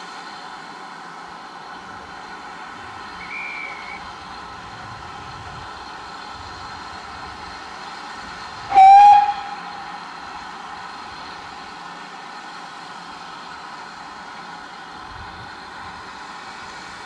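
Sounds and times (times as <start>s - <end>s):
steady hiss: 0.0s - 17.0s
steam locomotive whistle: 3.1s - 4.2s, 8.6s - 10.0s.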